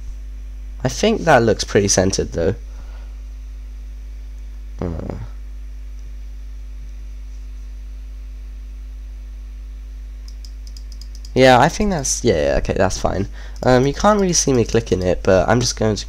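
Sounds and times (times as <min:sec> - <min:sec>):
electrical mains hum: 0:00.0 - 0:16.0
brief vocal sound: 0:04.8 - 0:05.4.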